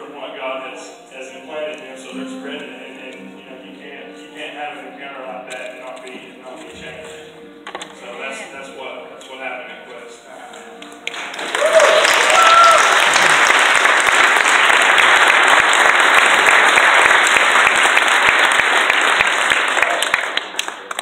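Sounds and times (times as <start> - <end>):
congregation applauding: 10.8 - 21.0.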